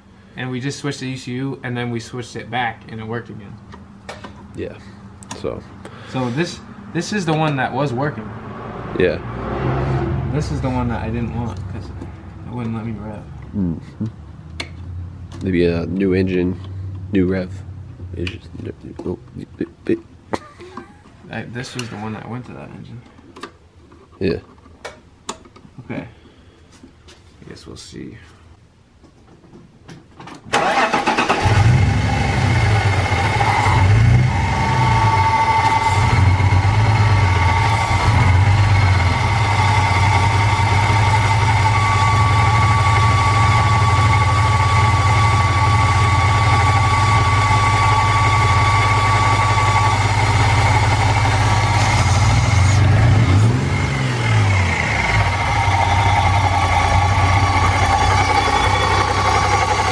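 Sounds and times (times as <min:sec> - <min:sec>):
car engine starting and revving: 0:06.1 - 0:13.6, 0:30.5 - 0:59.9.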